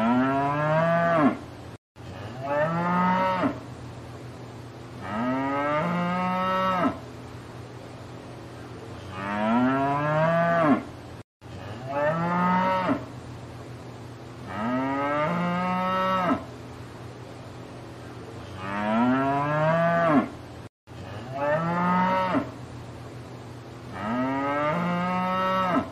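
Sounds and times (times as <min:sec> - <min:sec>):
cow mooing: 0:00.0 - 0:01.4, 0:02.2 - 0:03.6, 0:05.0 - 0:07.0, 0:09.1 - 0:10.9, 0:14.5 - 0:16.4, 0:18.6 - 0:20.3, 0:21.2 - 0:22.5, 0:23.9 - 0:25.9.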